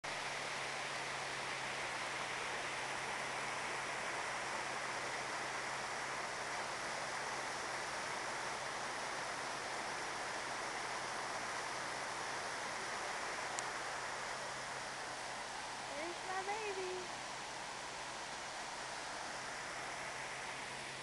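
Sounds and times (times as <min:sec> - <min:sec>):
waterfall rushing over boulders: 0:00.1 - 0:21.0.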